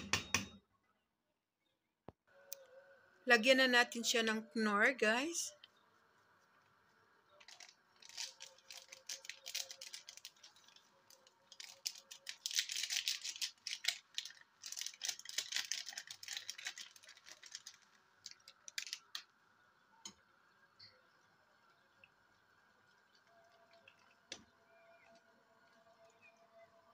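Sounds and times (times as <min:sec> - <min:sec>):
plastic sachets crinkling: 0:07.4 - 0:19.3.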